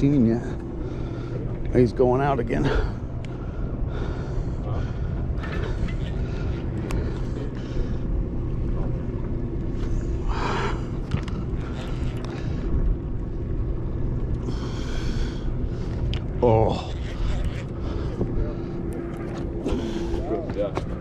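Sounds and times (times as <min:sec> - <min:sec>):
boat machinery droning: 0:00.0 - 0:21.0.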